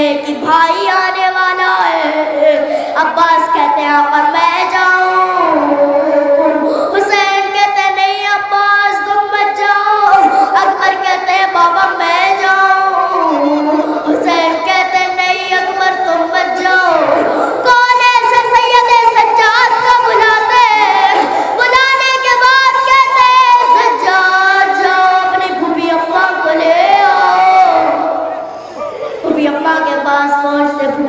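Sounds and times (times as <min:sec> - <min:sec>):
breaths between phrases: 0:02.6 - 0:03.0
person chanting a lament: 0:05.2 - 0:07.1, 0:10.0 - 0:11.2, 0:12.0 - 0:14.7, 0:16.1 - 0:17.7.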